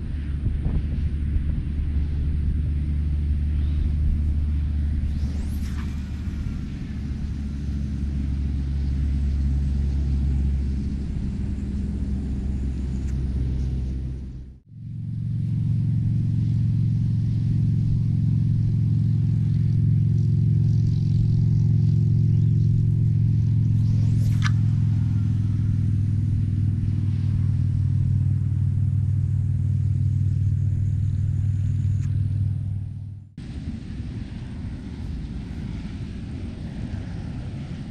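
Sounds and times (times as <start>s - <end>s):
low engine-like hum: 0.0s - 37.9s
rod swishing through air: 3.4s - 14.2s, 22.5s - 32.9s.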